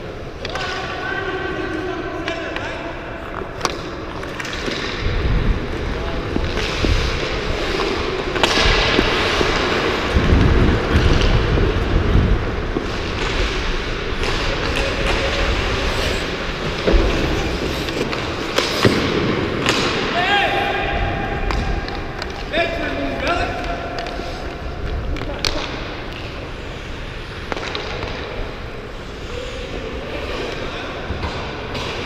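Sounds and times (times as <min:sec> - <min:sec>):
wind rumble on microphone: 0:05.0 - 0:07.5, 0:08.7 - 0:14.1
skate blades scraping on ice: 0:05.8 - 0:19.6.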